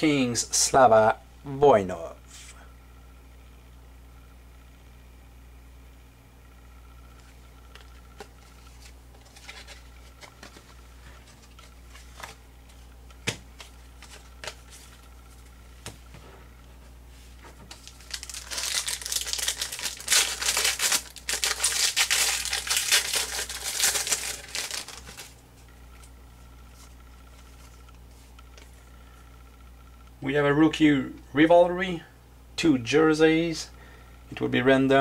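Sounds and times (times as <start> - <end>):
cards tapping on countertop: 13.2 - 14.6
wrapper crinkling and tearing: 17.7 - 25.4.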